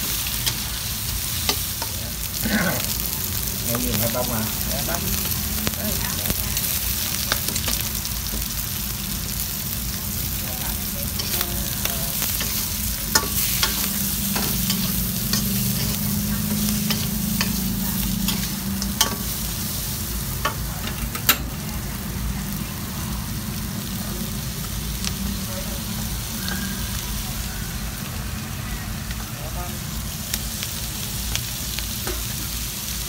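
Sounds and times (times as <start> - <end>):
shrimp sizzling in a wok: 0.0 - 33.0
metal spatula scraping wok: 11.0 - 20.0.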